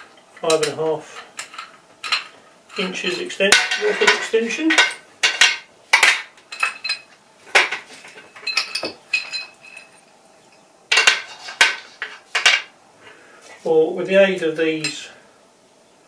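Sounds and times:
metal bolts clinking on table: 1.4s - 10.1s, 10.9s - 12.7s.

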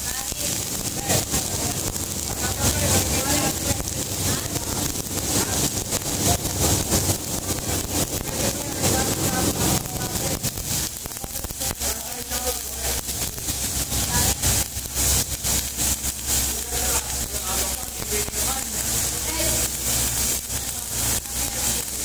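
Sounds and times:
low hum: 0.0s - 11.0s
welding arc crackling: 0.0s - 22.0s.

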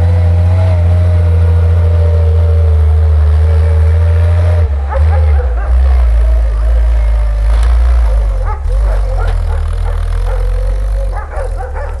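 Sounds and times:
truck engine rumbling: 0.0s - 12.0s
dog whining and yipping: 8.4s - 12.0s.

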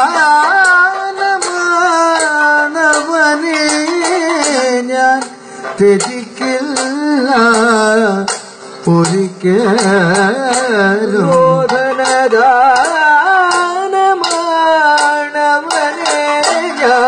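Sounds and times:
person singing ornamented melody: 9.0s - 13.4s.

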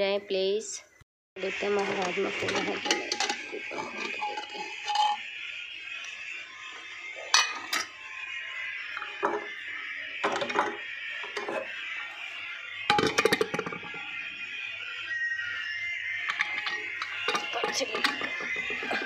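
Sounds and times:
metal pot clinking: 1.8s - 5.2s, 7.3s - 8.0s, 9.0s - 9.6s, 10.2s - 11.7s, 12.9s - 14.0s, 16.3s - 19.0s
background music: 16.2s - 19.0s.

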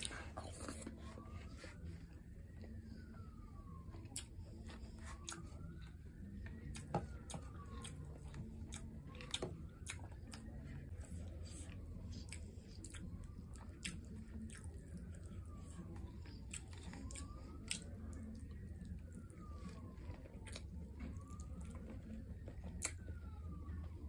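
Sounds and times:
chewing and wet mouth sounds: 0.0s - 24.0s
faint wailing tone: 0.0s - 24.0s.

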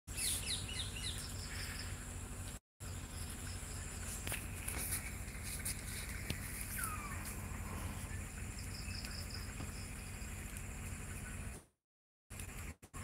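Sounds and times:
low rumble: 5.1s - 11.5s.

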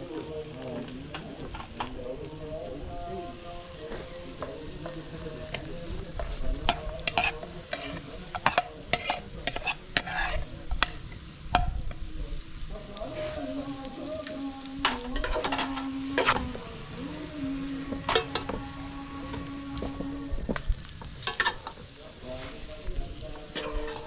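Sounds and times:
vegetables sizzling: 0.0s - 24.0s
metal spoon scraping a plate: 6.6s - 11.8s, 14.8s - 16.4s.

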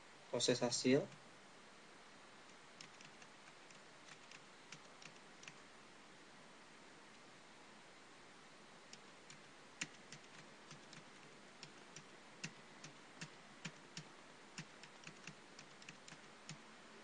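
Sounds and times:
steady low hiss: 0.0s - 17.0s
keyboard keystroke clicks: 8.9s - 16.6s.

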